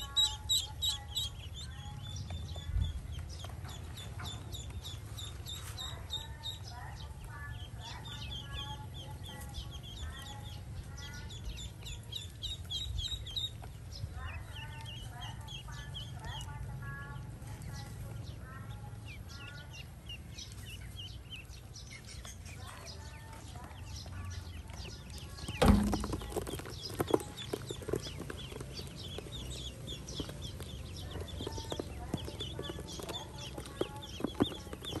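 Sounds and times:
ducklings peeping: 0.0 - 35.0
sharp knocks: 25.6 - 26.5.

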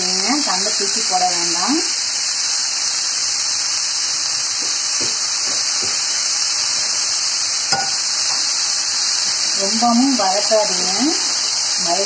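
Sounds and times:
leaves sizzling in hot oil: 0.0 - 12.0
soft oil pops: 4.6 - 6.0.

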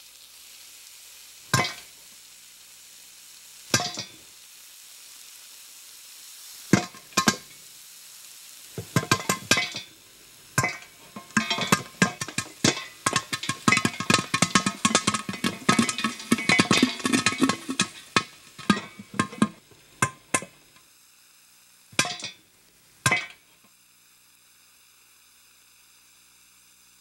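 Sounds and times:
popcorn popping: 1.4 - 2.0, 3.7 - 4.3, 6.7 - 7.7, 8.7 - 20.8, 21.9 - 23.7.

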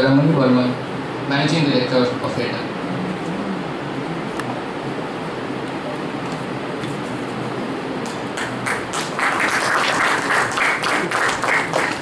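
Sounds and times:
audience applauding: 8.3 - 12.0.

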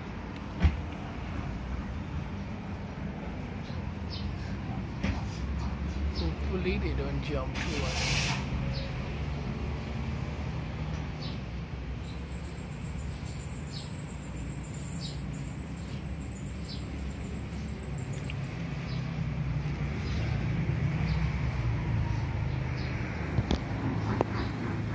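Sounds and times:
bird chirping: 12.0 - 19.2.

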